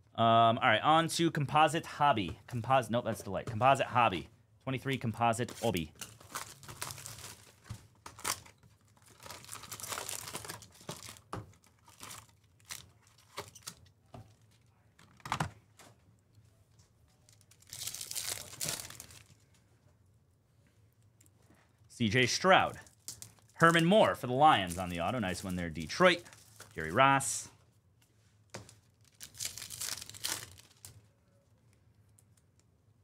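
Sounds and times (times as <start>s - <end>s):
plastic wrapping torn and crinkled: 5.7s - 13.8s, 17.2s - 19.4s, 22.9s - 26.8s, 28.7s - 31.1s.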